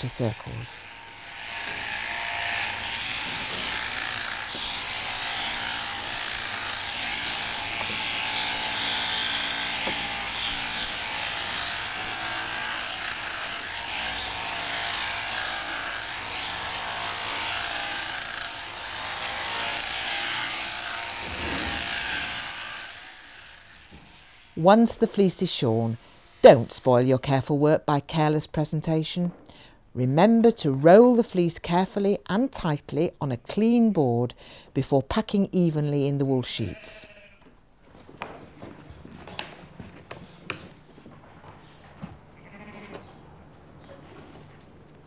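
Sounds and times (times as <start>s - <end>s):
shearing machine buzzing: 0.0s - 26.7s.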